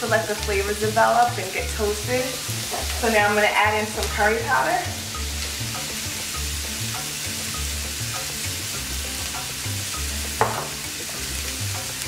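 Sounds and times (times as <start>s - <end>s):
food sizzling in frying pan: 0.0s - 12.0s
background music with low beat: 4.0s - 12.0s.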